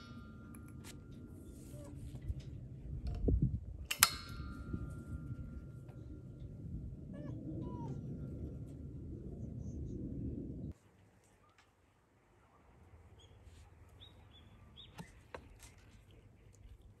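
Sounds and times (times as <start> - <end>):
sharp metallic click of coupler: 3.9 - 6.0.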